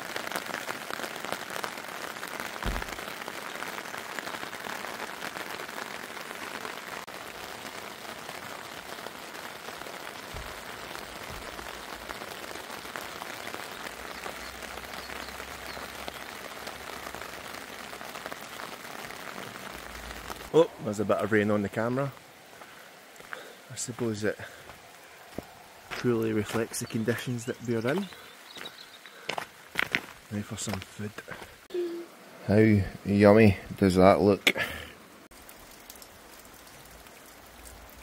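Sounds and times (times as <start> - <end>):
heavy rain on tent: 0.0 - 38.0
low thump: 2.6 - 3.0.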